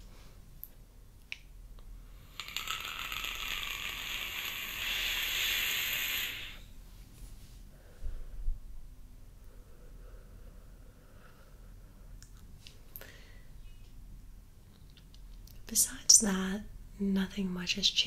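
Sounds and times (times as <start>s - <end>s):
vape hiss and crackle: 2.2s - 6.6s.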